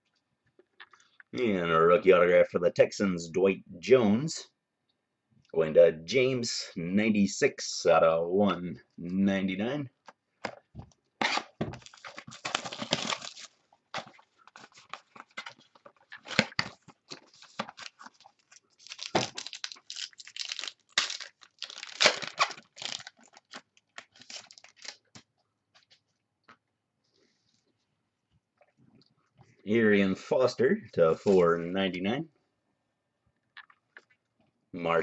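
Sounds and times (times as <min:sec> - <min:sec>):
foil pack tearing and crinkling: 0:11.2 - 0:25.1.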